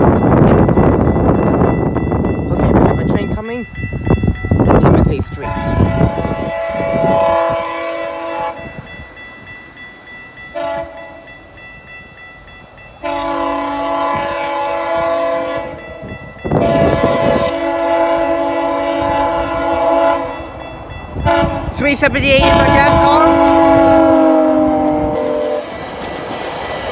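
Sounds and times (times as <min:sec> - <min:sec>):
train rumble: 0:00.0 - 0:26.9
train air horn blasts: 0:05.4 - 0:08.7, 0:10.5 - 0:11.2, 0:13.0 - 0:15.8, 0:16.5 - 0:20.4, 0:21.2 - 0:25.7.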